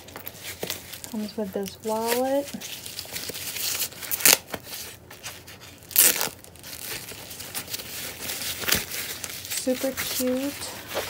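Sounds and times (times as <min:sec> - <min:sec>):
plastic wrapping crinkling: 0:00.0 - 0:11.0
wrapping ripping: 0:00.2 - 0:11.0.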